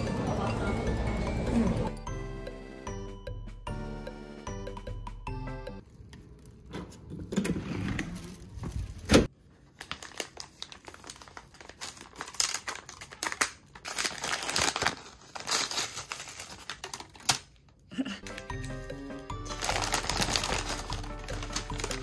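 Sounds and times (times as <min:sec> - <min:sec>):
paper wrapping crinkling and tearing: 0:08.1 - 0:18.8, 0:19.4 - 0:22.0.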